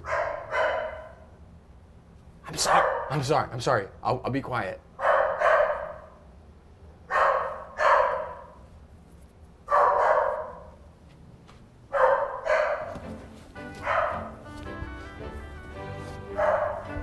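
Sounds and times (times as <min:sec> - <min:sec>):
dog barking: 0:00.0 - 0:01.3, 0:02.5 - 0:03.2, 0:05.0 - 0:06.2, 0:07.1 - 0:08.6, 0:09.7 - 0:10.8, 0:11.9 - 0:13.0, 0:13.7 - 0:14.4, 0:16.3 - 0:17.0.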